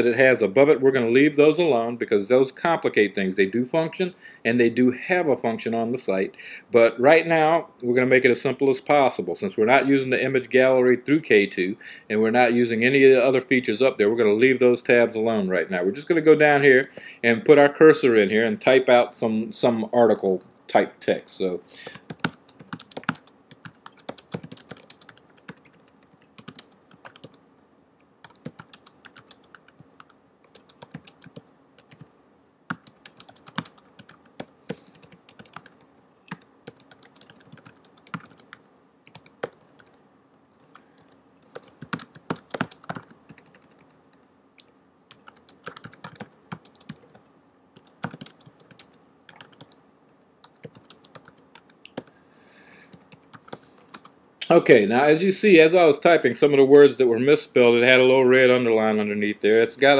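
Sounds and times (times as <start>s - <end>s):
computer keyboard typing: 21.8s - 32.1s, 32.7s - 40.0s, 40.6s - 49.8s, 50.4s - 52.1s, 52.9s - 54.1s.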